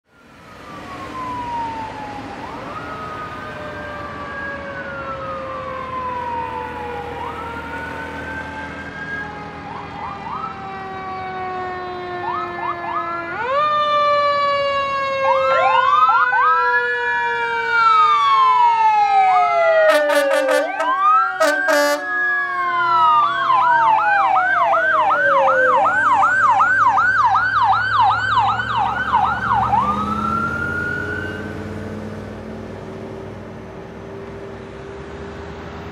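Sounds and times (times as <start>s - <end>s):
emergency sirens wailing: 0.0s - 35.9s
siren yelp: 0.1s - 31.7s
horn blasts: 19.9s - 22.2s.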